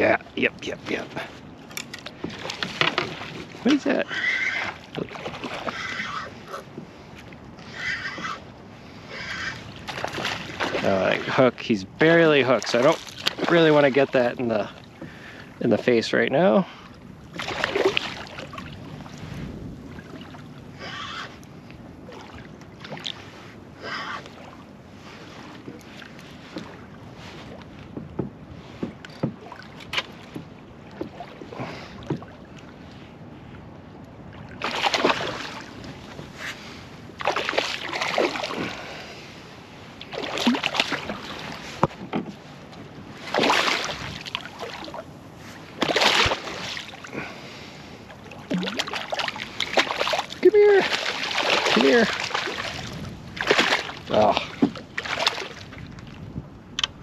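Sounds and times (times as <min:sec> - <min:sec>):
water lapping: 0:00.0 - 0:57.0
fish splashing at surface: 0:48.5 - 0:52.8.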